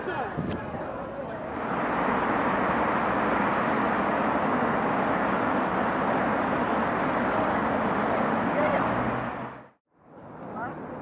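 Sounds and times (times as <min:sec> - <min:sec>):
vehicle road noise: 0:00.0 - 0:11.0.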